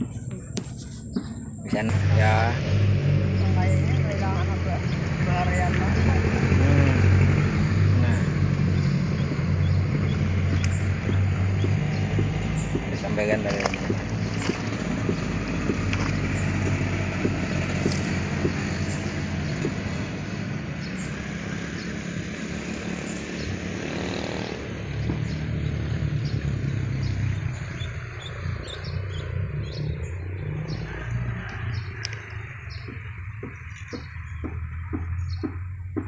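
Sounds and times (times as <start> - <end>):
engine droning: 0.0 - 36.0
light clicks and chirps: 8.5 - 14.8.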